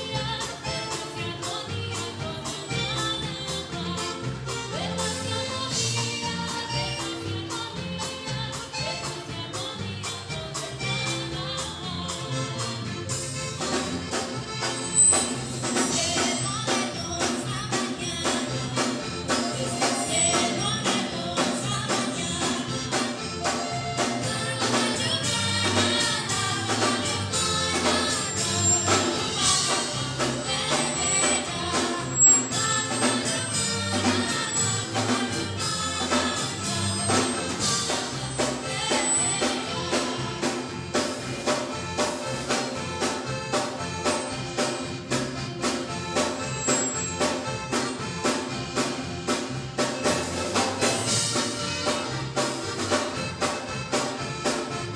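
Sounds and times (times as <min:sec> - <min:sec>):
women singing: 0:00.0 - 0:13.0, 0:15.4 - 0:42.8
band with saxophones and guitars: 0:00.0 - 0:54.9.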